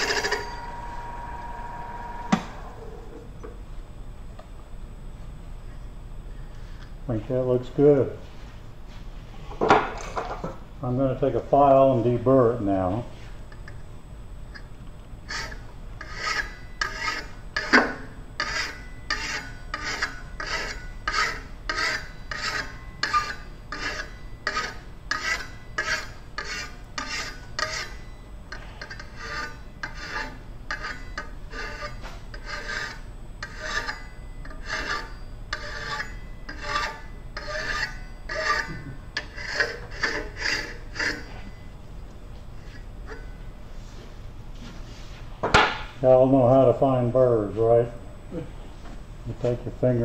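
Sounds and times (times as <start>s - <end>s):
hand file rasping on metal: 15.3s - 17.8s, 18.4s - 28.0s, 28.6s - 41.4s.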